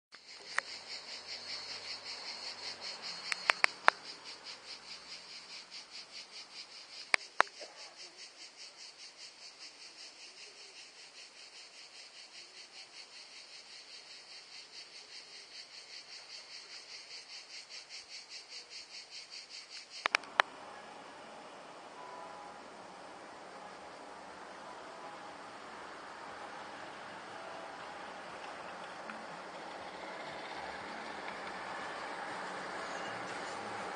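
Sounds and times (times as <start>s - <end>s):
cicadas buzzing: 0.1s - 33.9s
sharp clicks: 3.2s - 4.0s, 19.8s - 20.5s.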